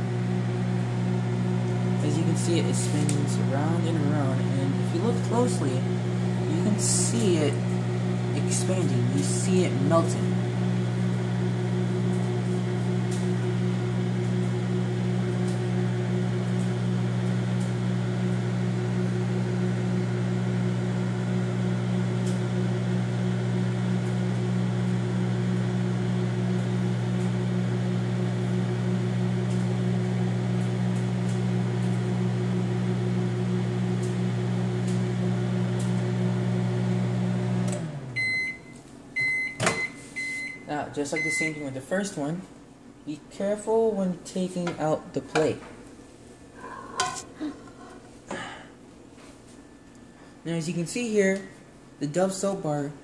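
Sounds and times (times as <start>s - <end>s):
microwave oven humming: 0.0s - 53.0s
microwave beep: 38.1s - 41.8s.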